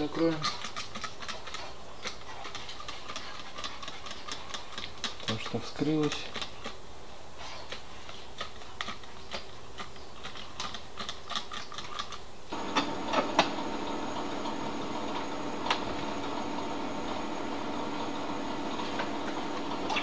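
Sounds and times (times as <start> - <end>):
machine hum with high whine: 12.5 - 20.0.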